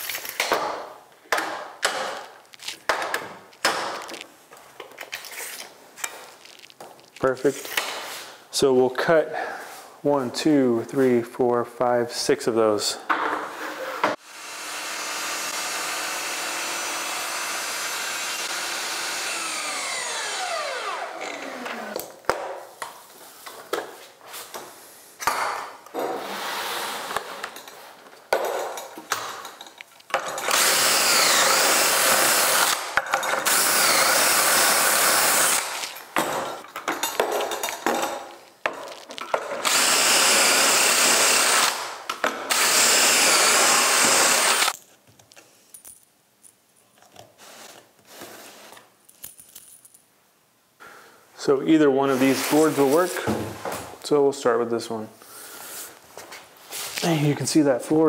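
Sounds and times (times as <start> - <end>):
cordless drill boring into wood: 14.2 - 22.0, 30.4 - 36.0, 39.6 - 44.8
miter saw running: 14.3 - 22.0, 30.5 - 35.9, 39.6 - 41.9, 42.5 - 44.7.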